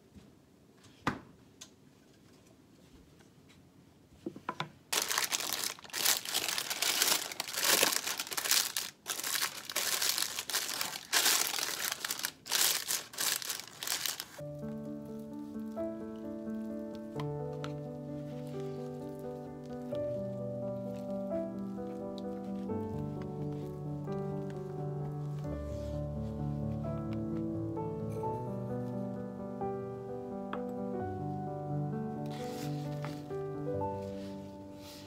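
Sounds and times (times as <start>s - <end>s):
baking paper crinkling: 4.9s - 14.4s, 17.6s - 25.9s, 32.3s - 33.4s
music with held notes: 14.4s - 35.0s.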